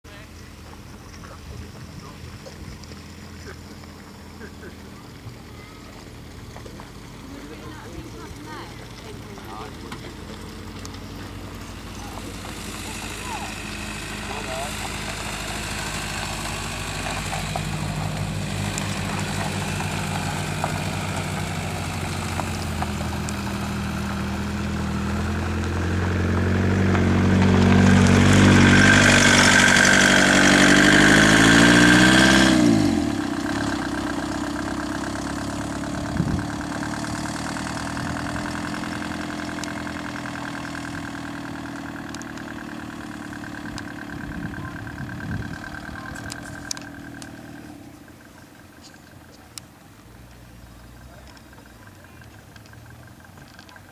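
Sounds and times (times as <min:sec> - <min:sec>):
van engine revving: 0:00.0 - 0:53.9.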